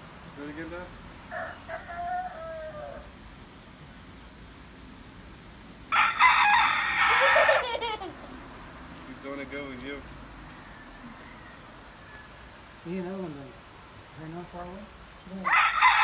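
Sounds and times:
rooster crowing: 1.3s - 3.2s, 5.9s - 8.1s, 10.7s - 12.4s, 15.4s - 16.0s.

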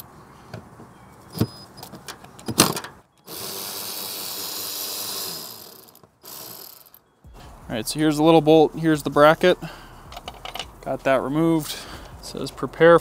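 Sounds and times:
sharp metallic clicks: 10.1s - 10.9s.

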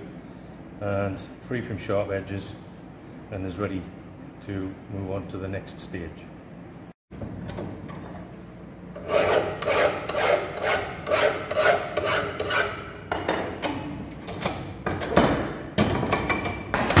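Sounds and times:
hand file rasping on steel: 9.0s - 12.8s.

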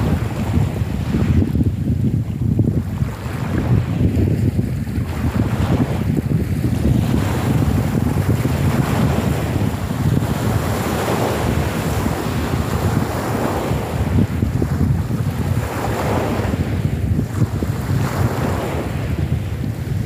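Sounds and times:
wind noise on microphone: 0.0s - 20.0s
waves washing onto pebble beach: 4.9s - 20.0s.

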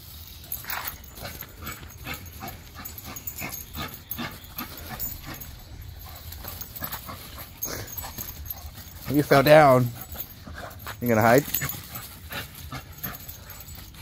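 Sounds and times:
dog whining and grunting: 0.9s - 9.2s.

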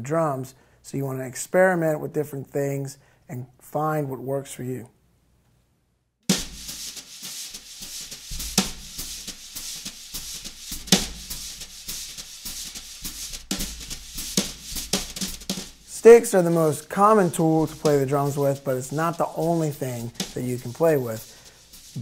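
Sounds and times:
wire brushes on snare drum: 6.3s - 22.0s.

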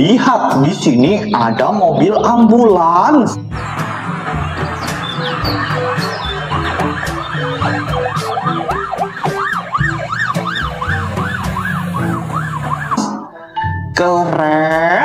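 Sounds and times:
ambulance siren wailing: 3.3s - 13.5s.

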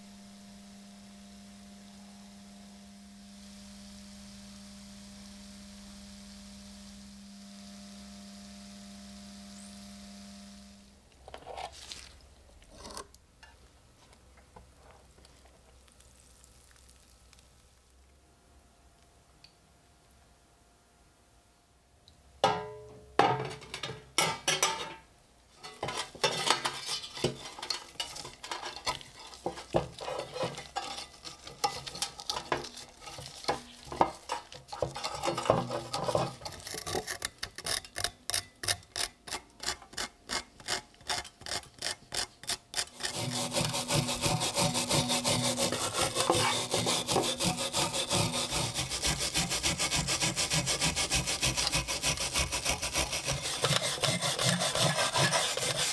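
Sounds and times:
wire brush scrubbing metal: 23.6s - 25.0s, 25.6s - 55.9s.

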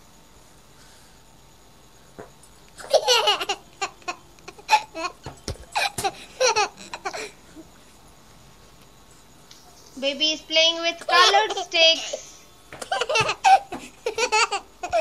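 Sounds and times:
baby laughing: 2.8s - 7.3s, 11.0s - 12.2s, 12.8s - 15.0s.

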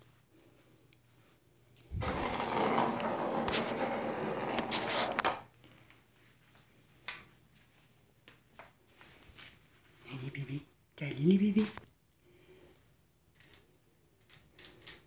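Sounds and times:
ball rattling around plastic track: 2.0s - 5.4s, 14.2s - 15.0s.

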